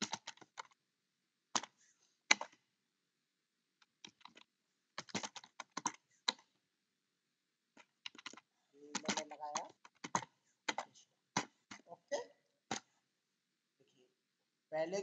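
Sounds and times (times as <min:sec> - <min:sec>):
computer keyboard typing: 0:00.0 - 0:00.8, 0:01.5 - 0:02.6, 0:03.8 - 0:06.5, 0:07.8 - 0:11.9.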